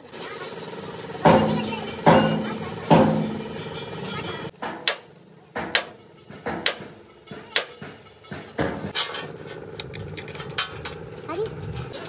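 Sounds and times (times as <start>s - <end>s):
hammer blows on steel: 1.2s - 4.0s.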